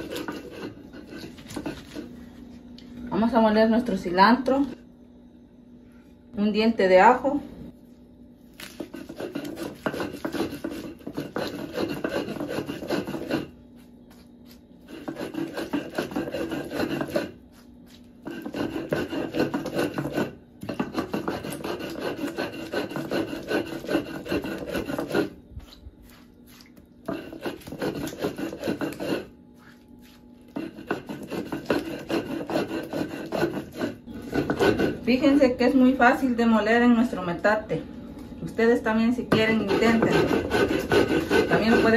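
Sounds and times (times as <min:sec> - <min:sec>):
stone grinding on stone: 0:00.0 - 0:02.2, 0:08.7 - 0:14.2, 0:14.8 - 0:25.4, 0:27.0 - 0:35.4, 0:39.3 - 0:41.9.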